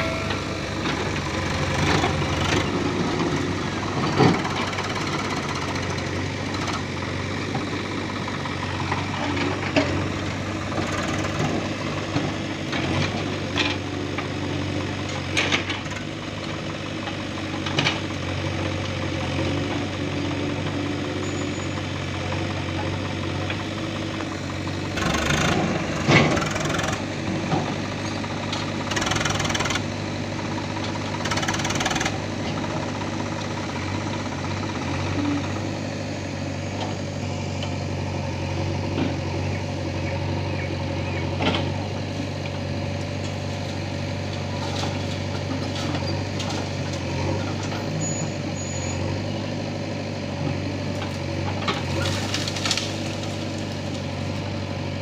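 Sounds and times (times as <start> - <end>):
sharp metal clanks: 0.0 - 1.2
tractor diesel engine running: 0.0 - 55.0.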